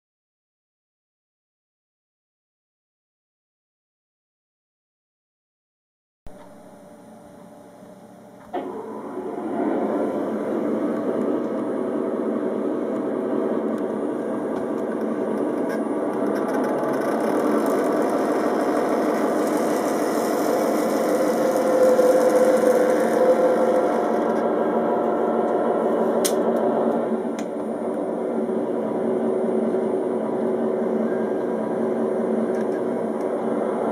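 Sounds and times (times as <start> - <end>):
simulated diesel locomotive engine: 6.4 - 33.9.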